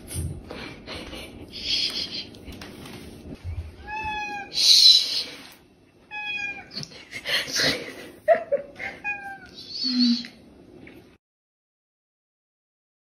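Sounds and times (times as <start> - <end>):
cat meowing: 3.8 - 4.6, 6.1 - 6.7, 9.0 - 9.6.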